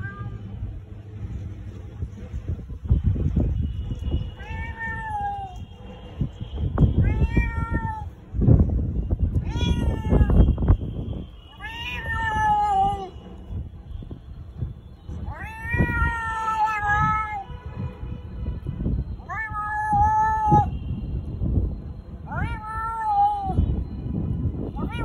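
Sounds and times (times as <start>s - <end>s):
cat meowing: 0.0s - 0.4s, 4.4s - 5.6s, 7.0s - 8.2s, 9.4s - 10.4s, 11.5s - 13.1s, 15.3s - 17.4s, 19.2s - 20.7s, 22.3s - 23.6s, 24.8s - 25.0s.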